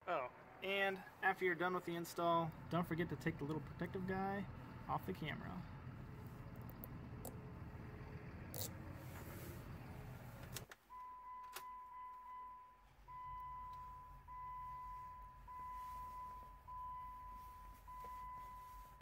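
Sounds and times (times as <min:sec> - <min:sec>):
car warning chime beeping: 0:10.9 - 0:19.0.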